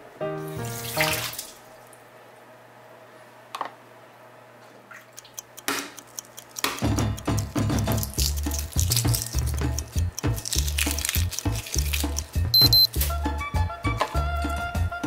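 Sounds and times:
music: 0.0 - 1.3, 6.7 - 15.0.

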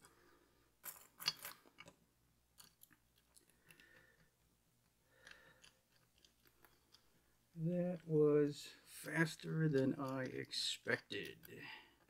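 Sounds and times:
lock pick clicking and scraping: 0.8 - 2.0, 5.2 - 7.2.

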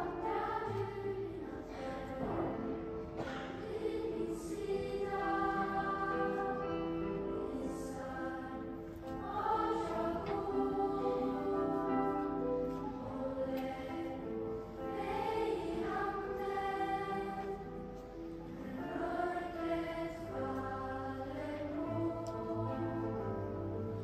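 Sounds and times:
children's choir singing: 0.0 - 24.0.

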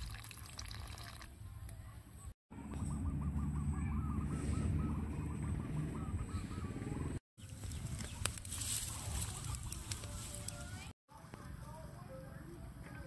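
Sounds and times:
campfire crackling: 7.4 - 11.9.

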